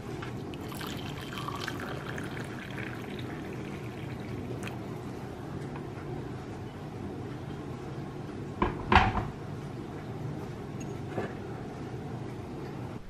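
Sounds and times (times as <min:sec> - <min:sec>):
water pouring into a mug: 0:00.4 - 0:05.1.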